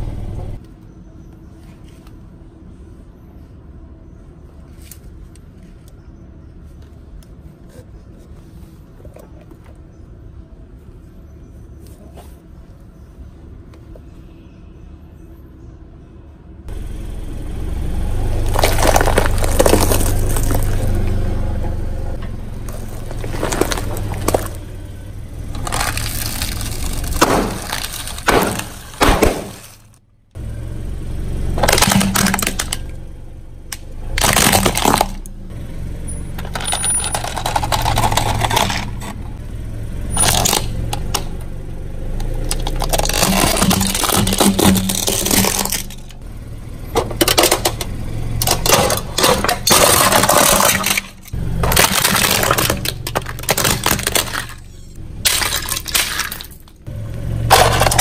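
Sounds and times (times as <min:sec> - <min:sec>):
car rumble: 0:00.0 - 0:00.6, 0:16.4 - 0:58.0
tyre crushing objects: 0:18.3 - 0:21.0, 0:22.5 - 0:24.8, 0:25.4 - 0:30.0, 0:31.6 - 0:32.8, 0:34.1 - 0:35.3, 0:42.2 - 0:46.2, 0:46.9 - 0:56.8, 0:57.5 - 0:58.0.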